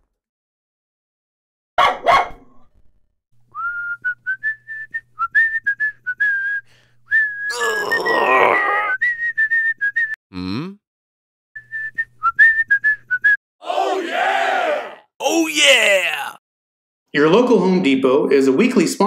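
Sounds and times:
whistled tune: 3.5s - 7.6s, 8.8s - 10.2s, 11.6s - 13.4s.

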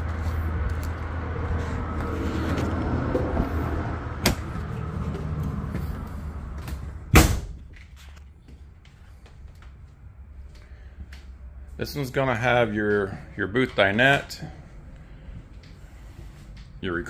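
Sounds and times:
outdoor background rumble: 0.0s - 17.0s
door shutting with a thud: 7.1s - 7.7s.

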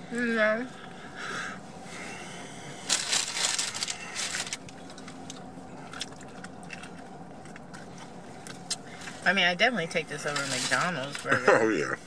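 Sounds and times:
wrapper crinkling: 2.8s - 5.3s
burger bite crunching: 2.8s - 9.0s
chewing clicks: 4.8s - 8.8s.

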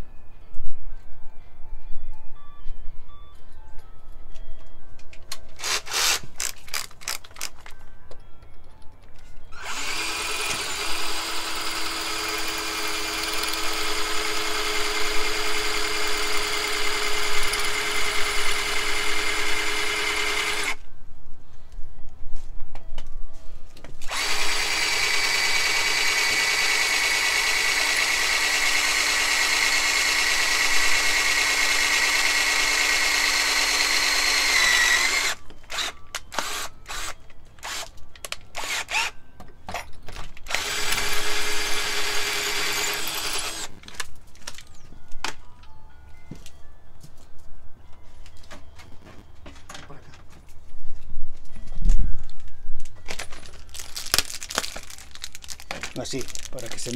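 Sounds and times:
cordless drill boring into brick: 5.6s - 7.2s, 9.6s - 20.8s, 24.1s - 37.9s, 38.6s - 39.1s, 40.5s - 43.8s
drill clicks: 5.6s - 7.8s, 9.6s - 20.8s, 24.1s - 39.2s, 40.4s - 43.8s.

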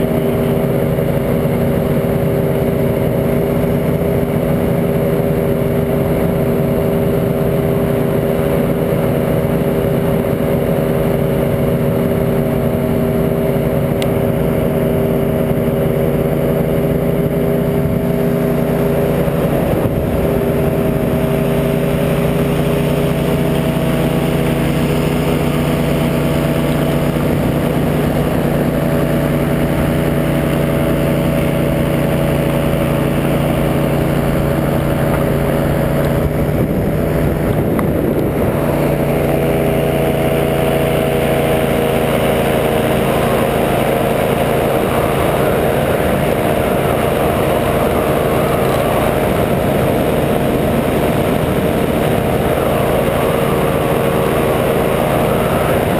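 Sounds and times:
paramotor engine drone: 0.0s - 55.9s
rushing air noise: 11.6s - 55.9s.

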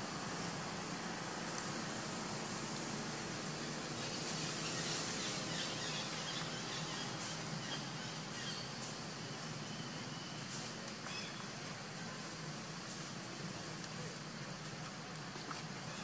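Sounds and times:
steady background hiss: 0.0s - 16.0s
faint bird chirps: 3.6s - 11.4s.

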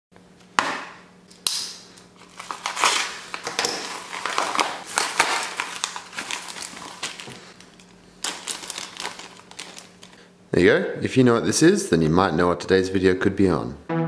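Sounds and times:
paper envelope tearing: 2.2s - 7.5s, 8.2s - 10.2s.

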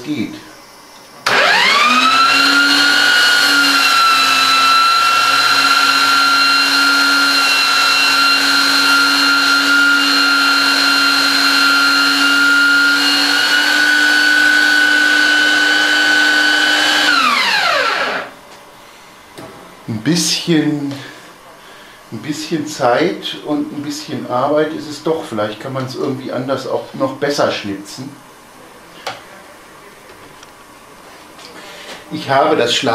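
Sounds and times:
belt sander whining: 1.2s - 18.4s
wood grinding against sander belt: 1.3s - 18.3s.

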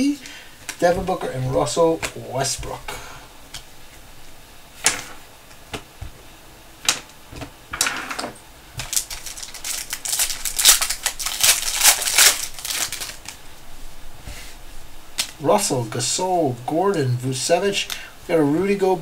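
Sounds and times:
plastic wrapper crinkling: 8.8s - 13.4s
plastic wrapper rustles: 8.8s - 13.4s.

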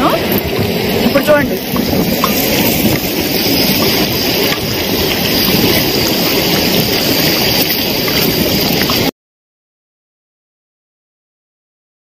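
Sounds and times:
wind buffeting microphone: 0.0s - 9.1s.

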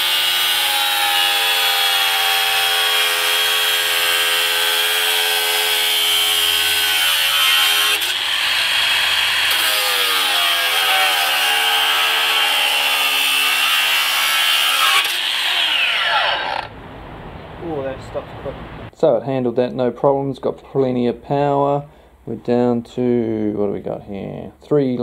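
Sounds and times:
angle grinder cutting steel: 0.0s - 16.7s.

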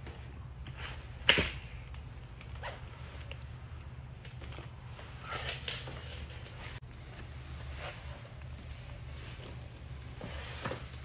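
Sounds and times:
low steady hum: 0.0s - 11.0s
fabric rustling: 4.7s - 11.0s.

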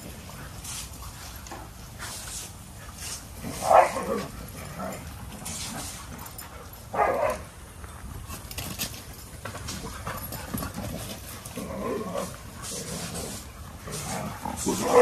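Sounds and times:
dog barking: 3.6s - 4.1s, 7.0s - 7.4s.

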